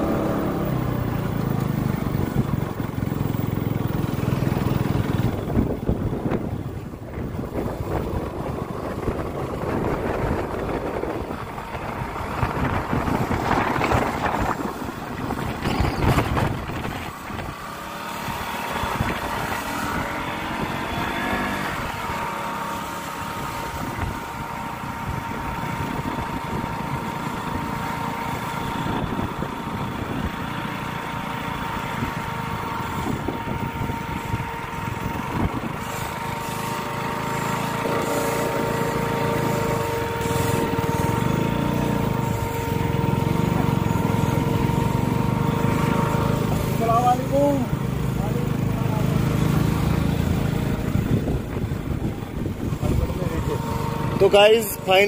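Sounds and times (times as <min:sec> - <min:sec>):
wind gusts on microphone: 0:00.0 - 0:22.3, 0:23.3 - 0:27.8, 0:31.7 - 0:36.4, 0:49.2 - 0:55.0
high-pitched whine: 0:00.0 - 0:55.0
motorcycle engine running: 0:00.0 - 0:55.0
wind and road noise: 0:00.0 - 0:55.0.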